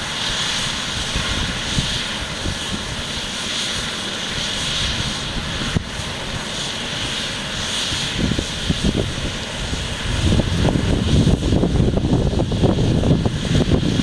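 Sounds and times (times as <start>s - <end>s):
helicopter turbine whine and rotor: 0.0s - 14.0s.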